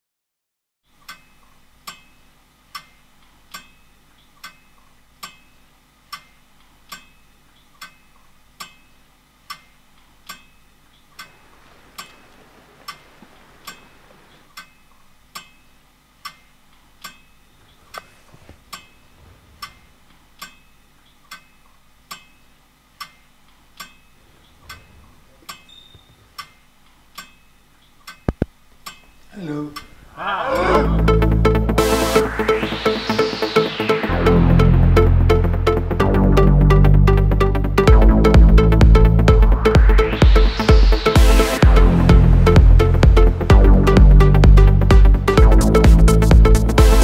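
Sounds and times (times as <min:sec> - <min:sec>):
clock-like ticking: 0:07.8 - 0:11.4, 0:34.9 - 0:47.0
soft rushing noise: 0:11.3 - 0:14.5, 0:17.7 - 0:20.1, 0:29.4 - 0:35.6.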